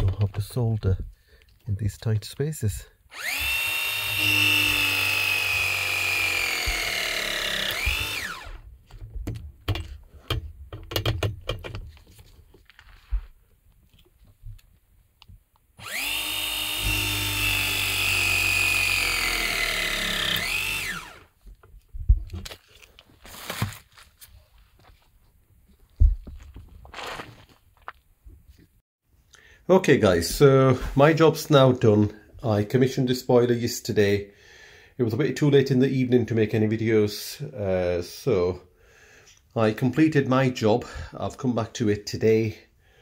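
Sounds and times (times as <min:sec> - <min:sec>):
press gun motor running: 0:03.1 - 0:08.6, 0:15.8 - 0:21.3
clicks and knocks of tool handling: 0:08.9 - 0:12.8.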